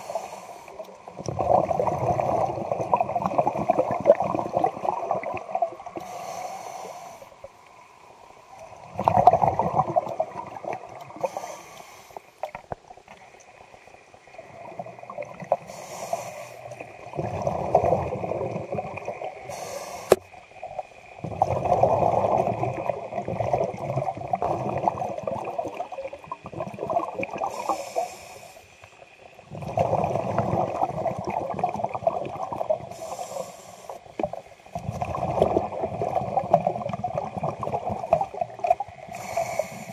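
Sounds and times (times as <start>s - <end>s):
regulator inhale hiss: 0.0s - 1.1s, 5.8s - 7.8s, 11.1s - 12.6s, 15.5s - 17.0s, 19.3s - 20.4s, 27.3s - 29.0s, 32.8s - 34.5s, 39.0s - 39.9s.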